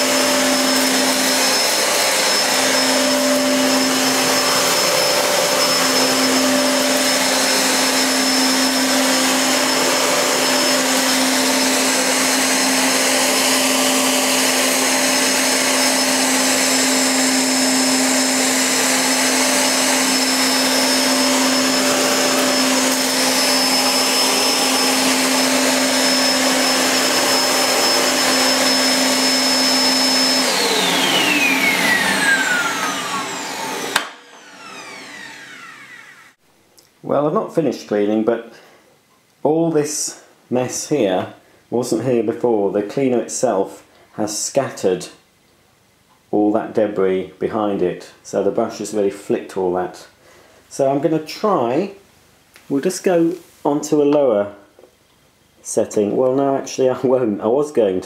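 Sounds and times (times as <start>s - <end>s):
vacuum cleaner whine: 0.0s - 36.4s.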